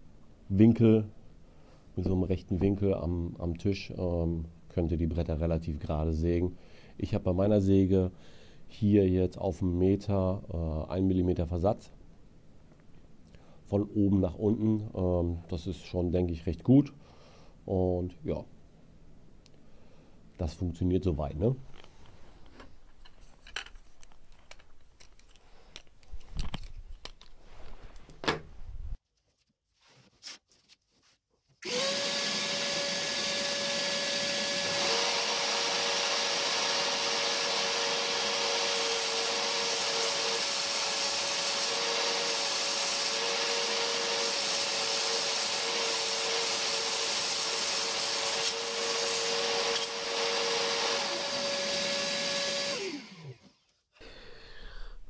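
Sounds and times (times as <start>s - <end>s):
circular saw whining: 31.6s - 53.8s.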